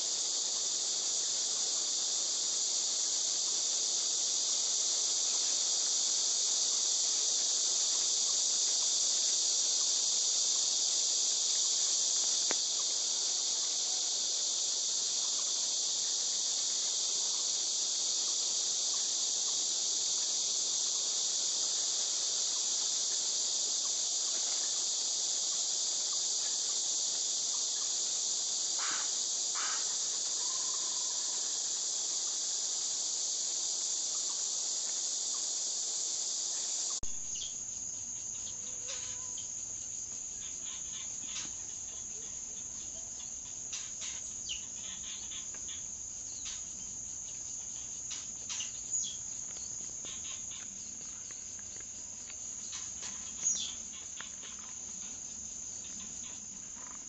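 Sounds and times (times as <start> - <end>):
insect chorus drone: 0.0 - 57.0.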